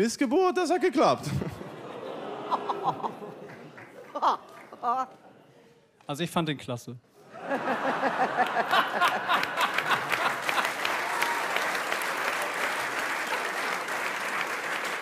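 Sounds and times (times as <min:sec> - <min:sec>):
audience applauding: 0:02.5 - 0:05.1, 0:08.0 - 0:15.0.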